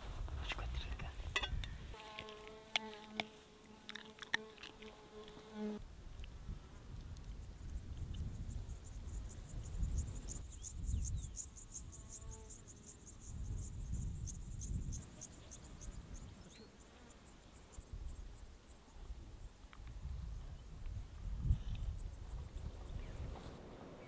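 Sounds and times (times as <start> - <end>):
insects chirping: 6.8 - 20.2.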